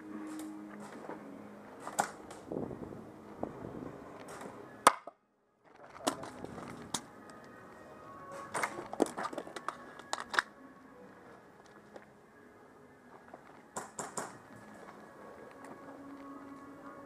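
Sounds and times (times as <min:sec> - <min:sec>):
rustling of gear: 0:05.6 - 0:07.1.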